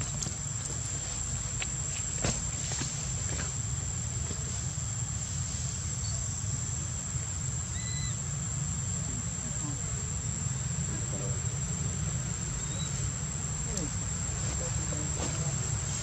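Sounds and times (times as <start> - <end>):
high-pitched insect drone: 4.0 - 16.0.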